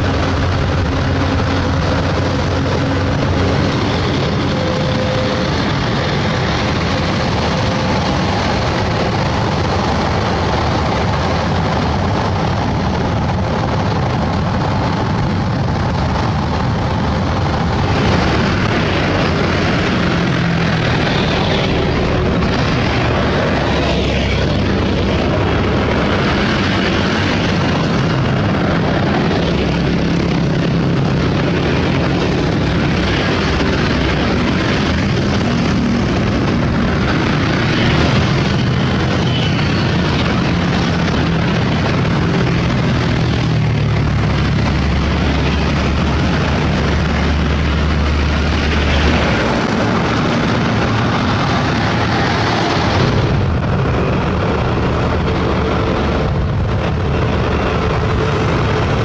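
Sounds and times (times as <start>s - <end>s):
road traffic engine drone: 0.0s - 59.0s.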